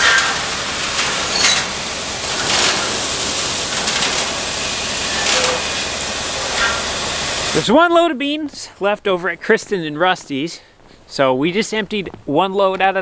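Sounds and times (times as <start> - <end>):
grain pouring into trailer: 0.0 - 7.7.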